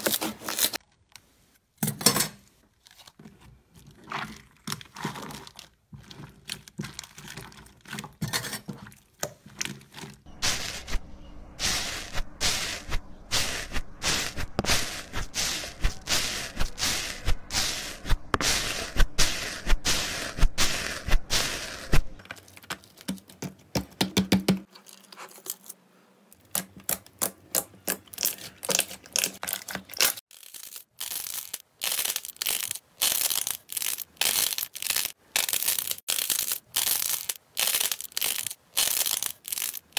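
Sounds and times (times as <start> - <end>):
slime squishing and crackling: 2.8 - 8.2, 26.5 - 39.9.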